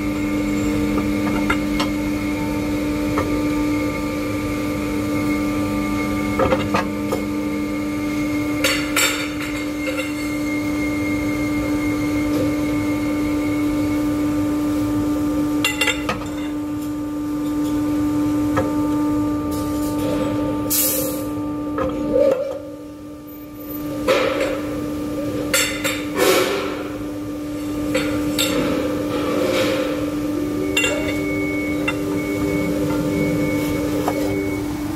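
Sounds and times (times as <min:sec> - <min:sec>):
bending machine humming: 0:00.0 - 0:34.9
lower hum: 0:27.6 - 0:34.9.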